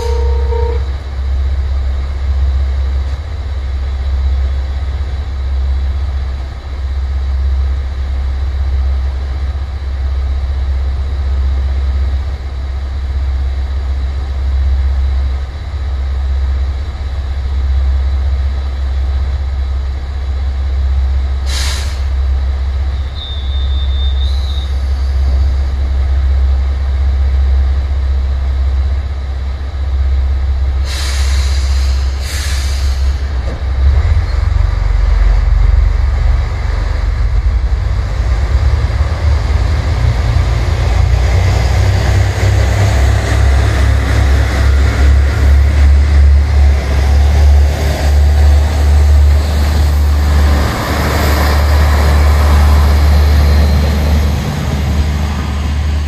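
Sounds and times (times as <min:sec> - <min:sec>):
air brake hiss: 0:21.4 - 0:22.2, 0:30.8 - 0:33.3
short high beep: 0:23.1 - 0:24.7.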